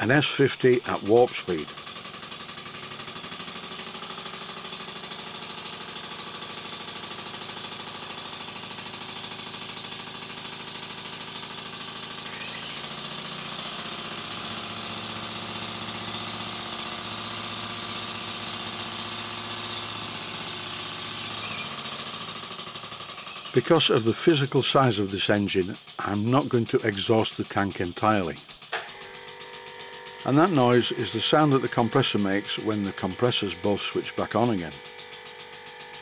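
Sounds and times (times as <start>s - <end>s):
model steam engine running: 0.0s - 36.0s.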